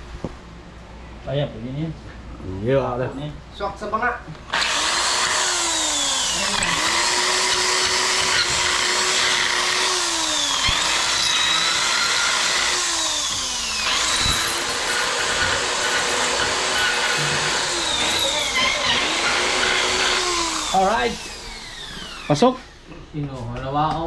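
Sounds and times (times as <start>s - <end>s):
electric drill motor: 4.5s - 22.5s.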